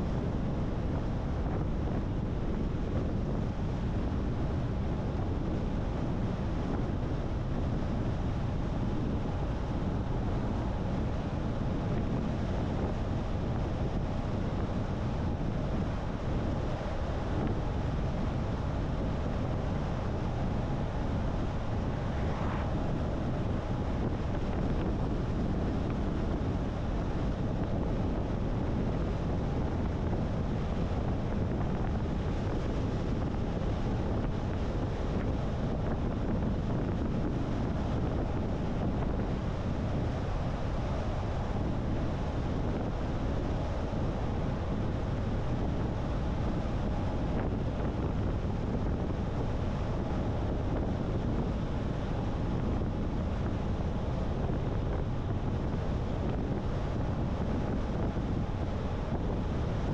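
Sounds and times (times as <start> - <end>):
wind noise: 0.0 - 59.9.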